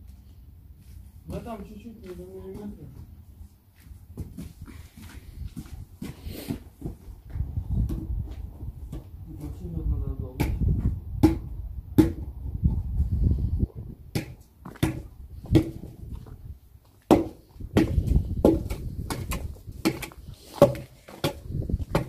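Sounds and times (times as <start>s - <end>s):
wooden logs knocking and thudding: 10.4s - 12.4s, 14.1s - 16.4s, 17.0s - 22.0s.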